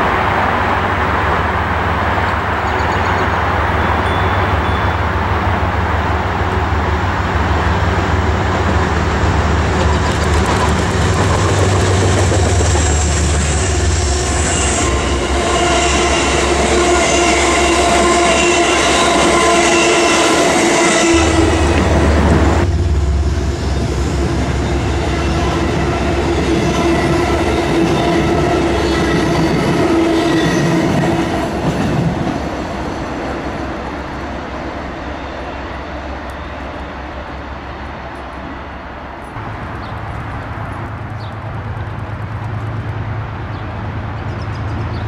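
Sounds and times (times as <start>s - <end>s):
train passing: 0.0s - 45.0s
wheels rumbling on rails: 0.0s - 45.0s
high-pitched whine: 20.3s - 26.9s.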